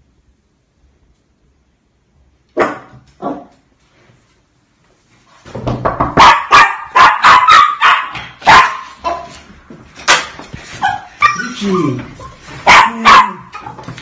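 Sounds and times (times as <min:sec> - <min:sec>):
small dog barking: 0:02.6 - 0:03.5, 0:06.2 - 0:09.3, 0:12.6 - 0:13.5.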